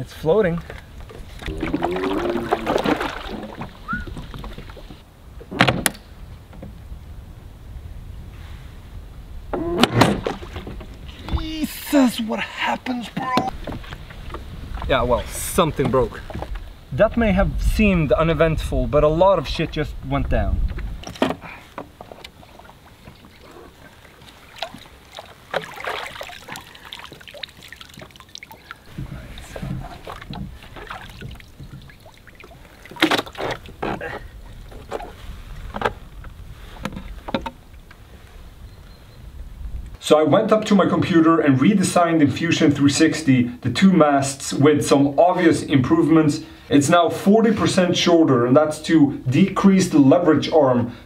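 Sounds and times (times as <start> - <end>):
water splashing and sloshing: 0.1 - 5.6, 9.5 - 16.9, 20.7 - 38.0.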